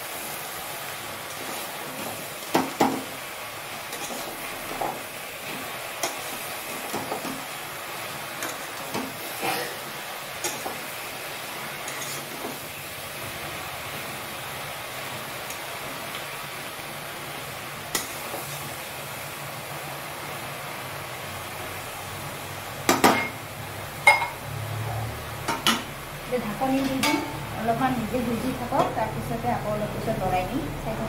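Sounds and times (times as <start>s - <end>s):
frying hiss: 0.0s - 31.0s
metal spatula scraping a wok: 3.9s - 5.0s, 11.8s - 12.6s.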